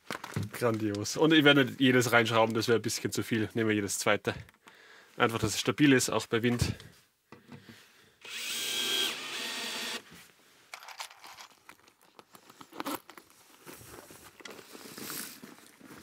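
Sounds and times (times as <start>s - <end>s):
cordless drill driving screw: 8.2s - 10.1s
faint handling clicks and rustles: 10.1s - 16.0s.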